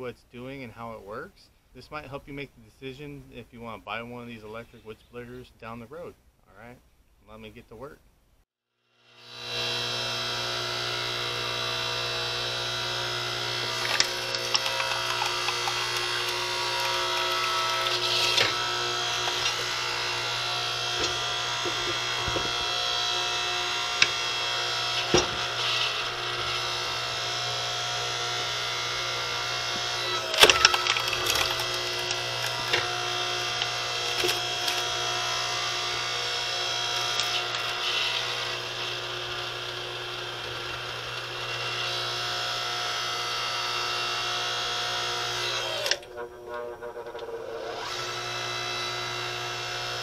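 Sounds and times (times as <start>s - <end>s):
motor and hydraulic pump hum: 9.1s - 46.1s, 47.2s - 50.0s
wood cracking and splintering: 13.3s - 28.0s, 28.6s - 42.0s.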